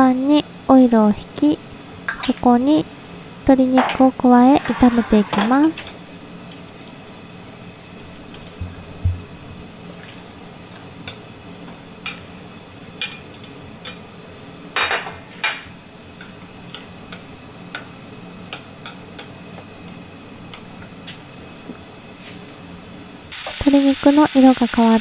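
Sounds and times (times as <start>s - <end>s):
low thump: 8.6s - 9.3s
utensils tapping against pan: 13.0s - 13.2s.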